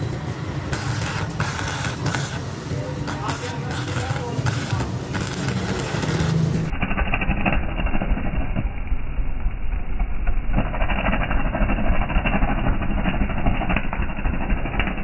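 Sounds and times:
welding arc crackling: 0.0s - 15.0s
low hum: 4.5s - 15.0s.

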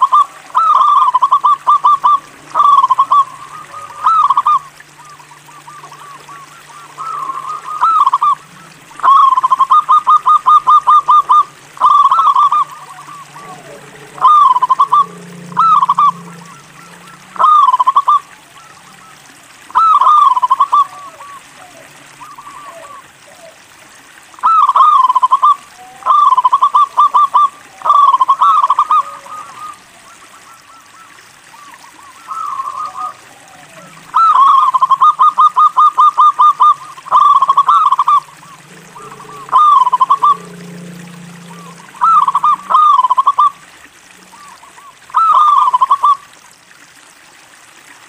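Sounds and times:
dove cooing: 0.0s - 23.8s, 24.4s - 46.3s.

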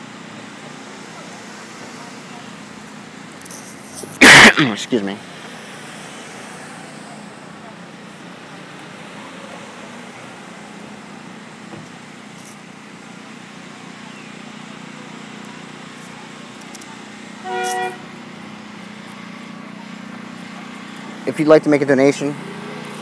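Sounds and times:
vehicle horn beep: 17.4s - 18.2s.

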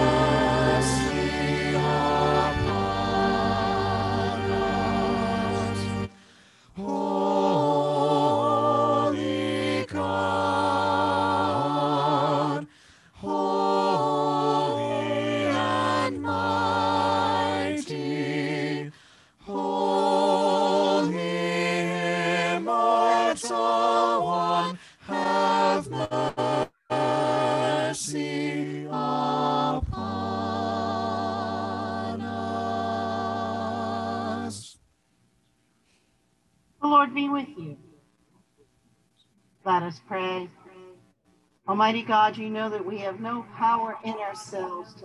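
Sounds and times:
vocal ensemble singing a cappella: 0.0s - 34.8s.

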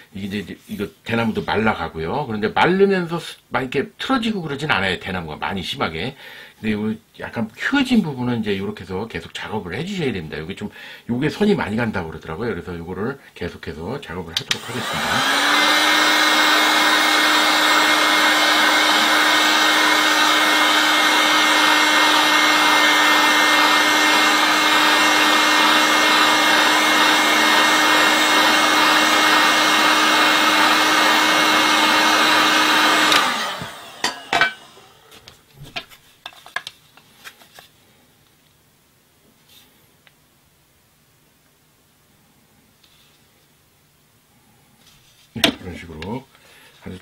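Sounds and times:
heat gun whirring: 14.4s - 35.0s.

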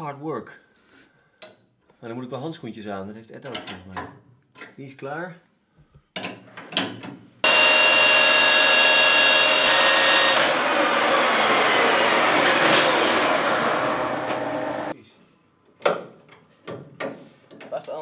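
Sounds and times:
metal lathe whirring: 7.4s - 14.9s.

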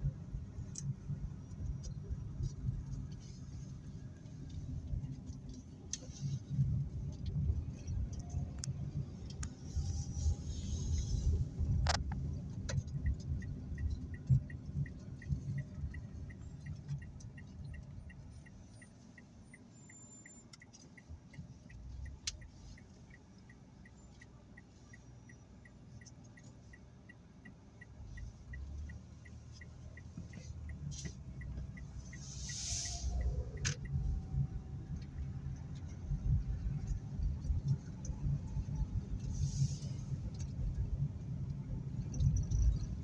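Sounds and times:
car engine rumble: 0.0s - 43.0s
road noise inside car: 0.0s - 43.0s
turn signal clicking: 0.0s - 43.0s
brief hiss: 32.1s - 33.8s.

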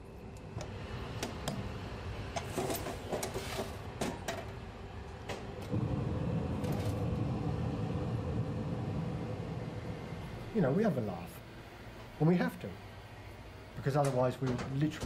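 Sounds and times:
machine humming: 4.9s - 13.8s.

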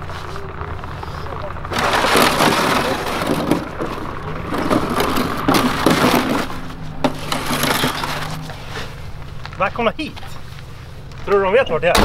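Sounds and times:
plastic crate scraping on snow: 1.7s - 8.9s.

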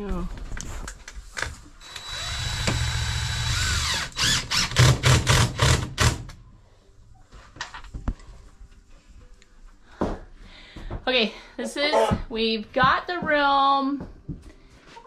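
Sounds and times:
cordless drill driving screw: 1.8s - 5.8s.

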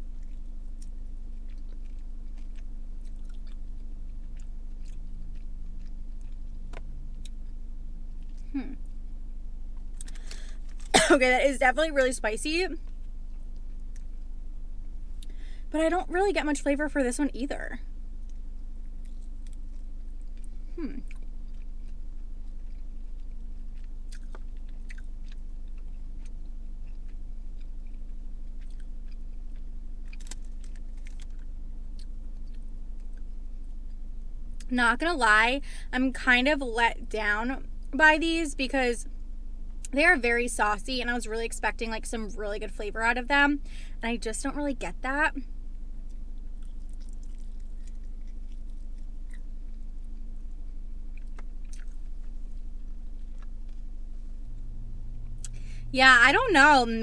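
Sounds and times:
steady low hum: 0.0s - 57.0s
person chewing: 0.1s - 9.0s, 9.8s - 10.9s, 18.2s - 33.3s, 46.0s - 50.2s, 51.1s - 53.9s.

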